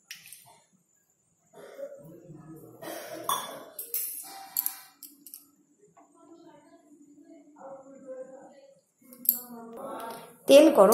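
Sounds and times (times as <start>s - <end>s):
metal utensils and pans clinking: 3.2s - 5.4s.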